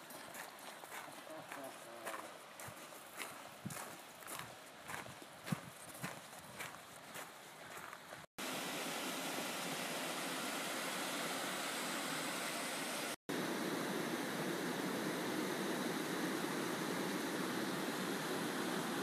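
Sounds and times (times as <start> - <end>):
creek water rushing: 8.4 - 19.0.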